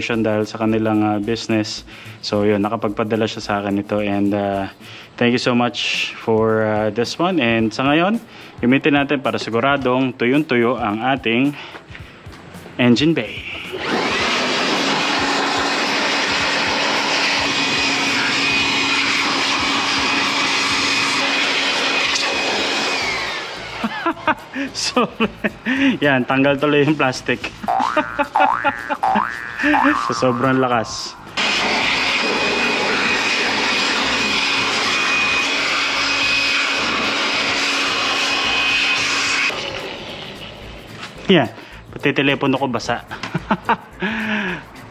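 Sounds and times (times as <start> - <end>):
electric air blower running: 13.4 - 41.8.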